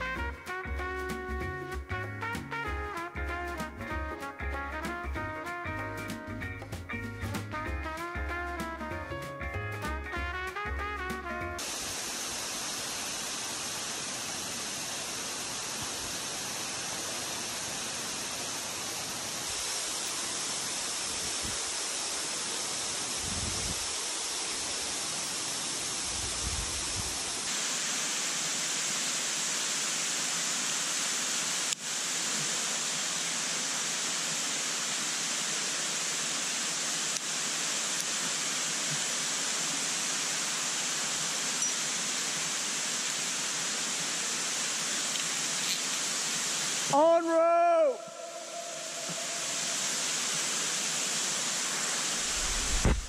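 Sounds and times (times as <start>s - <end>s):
steady rushing noise: 48.0s - 53.0s.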